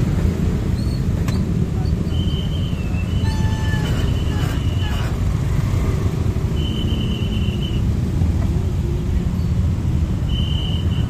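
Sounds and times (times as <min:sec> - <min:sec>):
scooter engines idling: 0:03.1 - 0:06.4.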